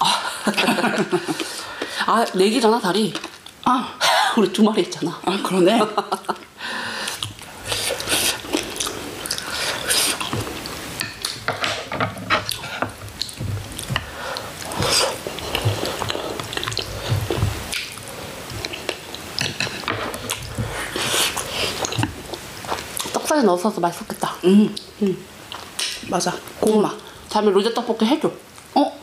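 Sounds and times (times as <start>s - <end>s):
people chewing: 0.0s - 2.4s, 3.1s - 3.7s, 6.0s - 23.3s, 24.6s - 27.1s.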